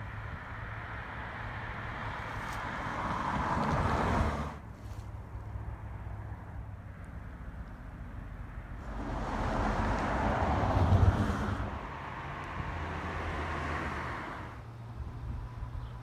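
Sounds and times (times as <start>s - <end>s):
vehicle passing by: 0.9s - 4.6s, 8.8s - 16.0s.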